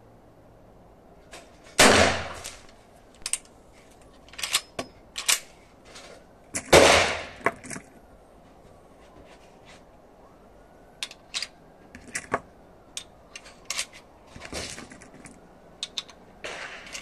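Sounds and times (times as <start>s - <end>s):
gunshots echoing: 1.8s - 2.6s, 6.7s - 7.4s, 16.4s - 17.0s.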